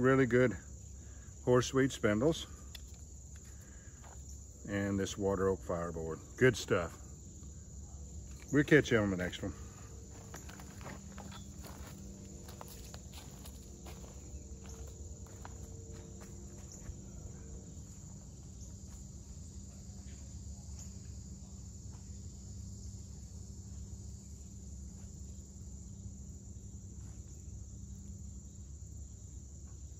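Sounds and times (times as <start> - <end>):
high insect chorus: 0.0 - 29.9
footsteps on mulch: 9.3 - 19.1.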